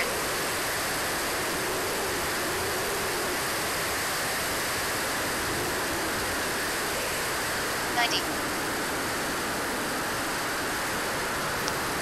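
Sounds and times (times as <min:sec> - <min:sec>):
jet turbine running: 0:00.0 - 0:12.0.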